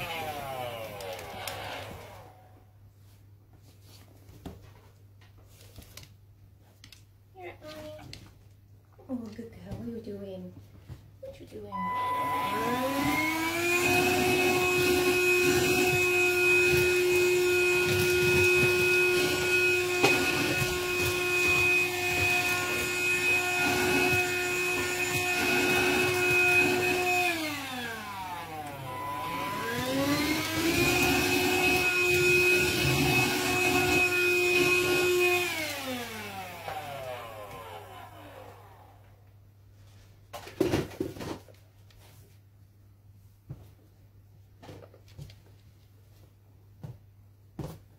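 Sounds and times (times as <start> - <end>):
handheld vacuum cleaner whine: 0.0 - 2.6, 11.7 - 39.2.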